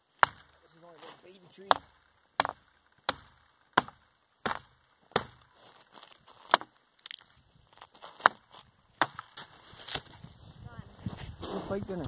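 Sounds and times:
hatchet chopping into tree trunk: 0:00.2 - 0:00.6, 0:01.6 - 0:05.5, 0:06.4 - 0:07.2, 0:08.1 - 0:10.1.

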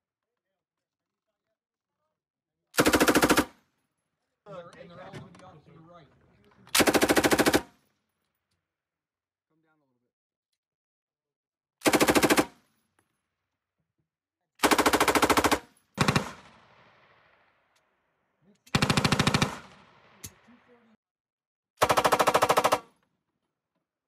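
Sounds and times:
machine gun bursts: 0:02.8 - 0:03.5, 0:18.7 - 0:19.7, 0:21.8 - 0:22.8
gunfire echo: 0:16.0 - 0:17.7, 0:18.7 - 0:20.7.

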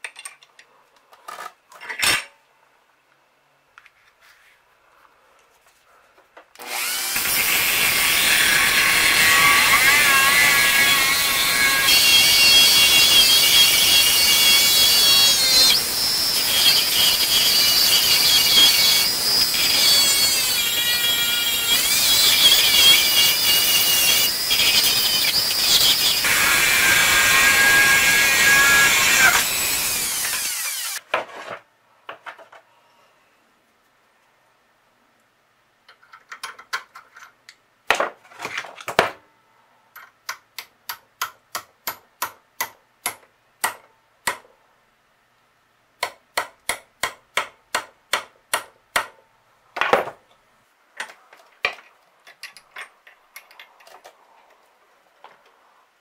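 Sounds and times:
grinder wheel grinding metal: 0:06.6 - 0:31.0.

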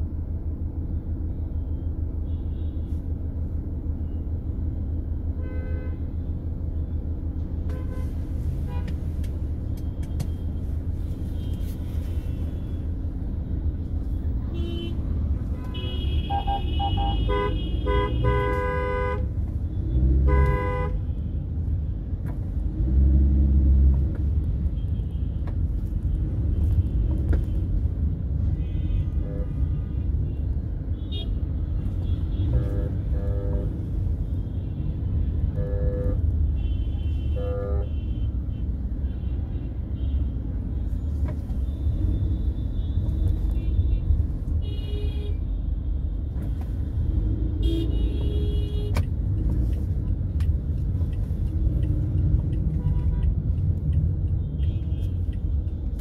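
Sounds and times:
road traffic rumble: 0:00.0 - 0:56.0
car horns honking: 0:15.6 - 0:19.3, 0:19.9 - 0:21.0, 0:35.3 - 0:38.4, 0:47.6 - 0:49.1.

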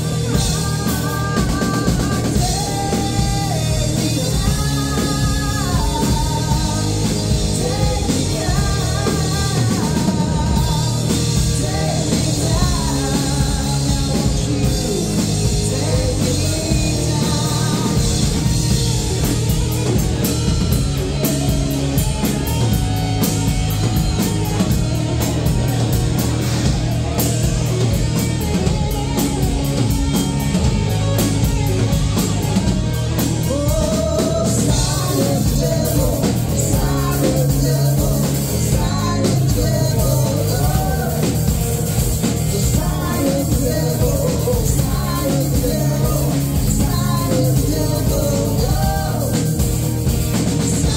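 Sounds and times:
woman singing: 0:00.0 - 0:18.9, 0:33.4 - 0:50.9
live rock band playing: 0:00.0 - 0:50.9.

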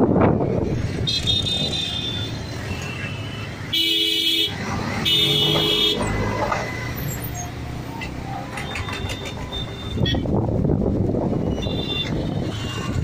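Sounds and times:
traffic engine and road noise: 0:00.0 - 0:13.0
vehicle horn: 0:03.7 - 0:06.1.

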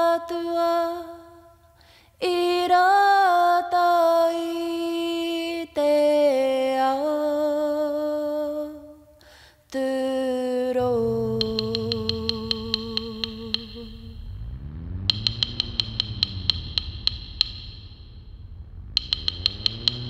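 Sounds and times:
person singing unaccompanied: 0:09.8 - 0:14.2
low drone: 0:10.8 - 0:20.0
fast clicking percussion: 0:11.1 - 0:14.4, 0:15.0 - 0:20.0.

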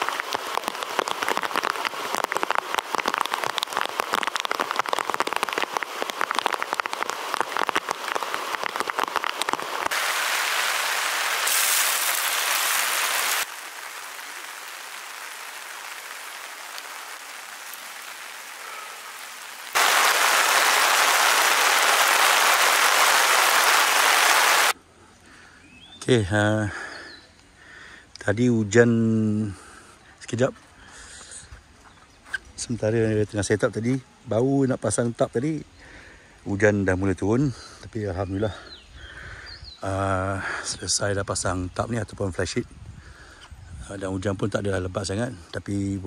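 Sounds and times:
heavy rain falling: 0:00.0 - 0:24.8.

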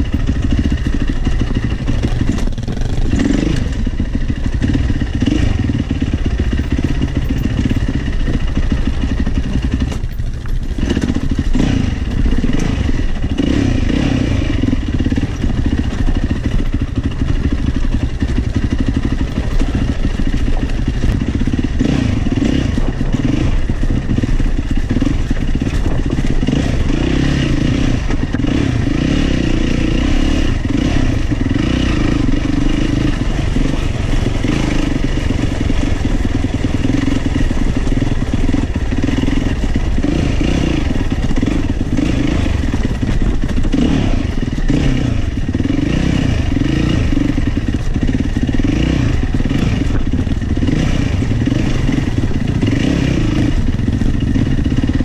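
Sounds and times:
bike clattering over rough ground: 0:00.0 - 0:13.5, 0:14.6 - 0:29.0, 0:30.6 - 0:45.8
dirt bike engine revving: 0:00.0 - 0:55.0.

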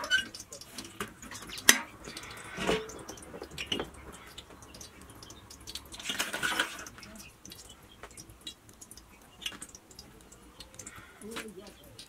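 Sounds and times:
handling noises: 0:00.0 - 0:05.0
frying pan sizzling: 0:00.0 - 0:12.0
wood fire crackling and popping: 0:00.0 - 0:12.0.

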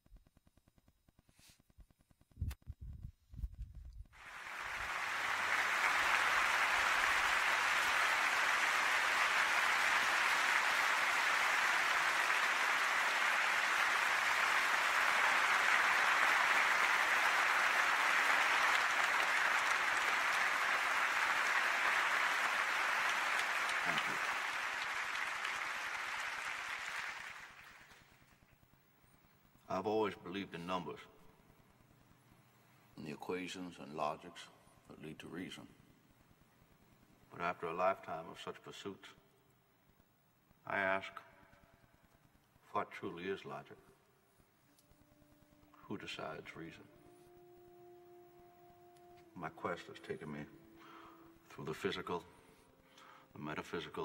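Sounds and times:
audience applauding: 0:04.2 - 0:28.3.

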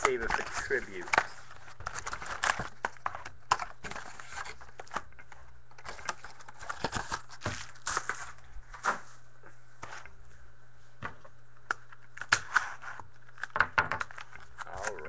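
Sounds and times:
cards and packaging clicking: 0:00.0 - 0:09.0, 0:11.6 - 0:15.0
wrapping crinkling and tearing: 0:00.0 - 0:09.0.

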